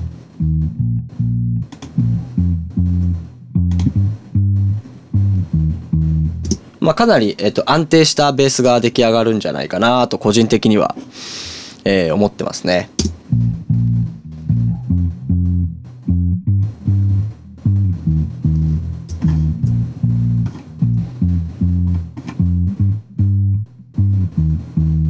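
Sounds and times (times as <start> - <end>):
electric bass guitar line: 0.0 - 6.7, 13.0 - 25.0.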